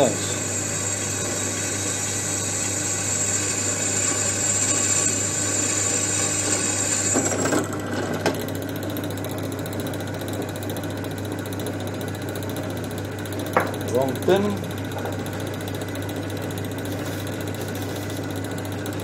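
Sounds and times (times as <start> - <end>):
drill bit cutting into steel: 0.0 - 7.6
electric drill motor running: 0.0 - 19.0.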